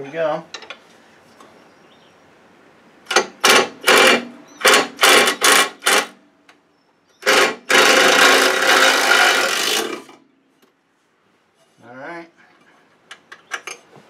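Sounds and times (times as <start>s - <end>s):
impact driver running: 7.2s - 10.1s.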